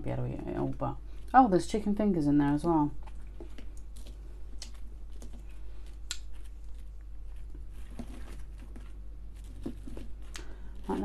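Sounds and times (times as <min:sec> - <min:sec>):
cardboard and paper rustling: 0:04.8 - 0:11.0.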